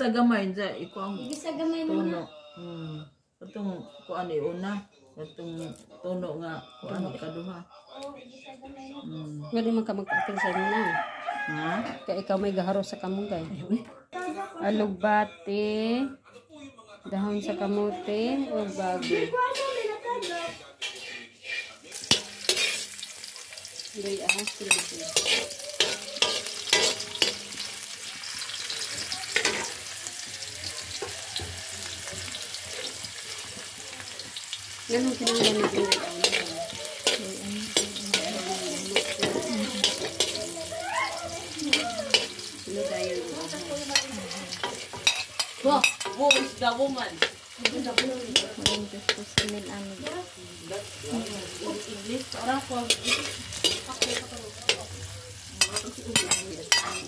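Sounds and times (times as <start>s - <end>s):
metal spatula scraping wok: 18.7s - 57.0s
garlic sizzling in hot oil: 19.5s - 57.0s.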